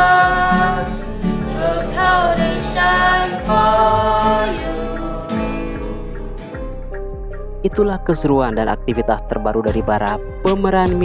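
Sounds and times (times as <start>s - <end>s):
acoustic guitar strumming: 0.0s - 7.4s.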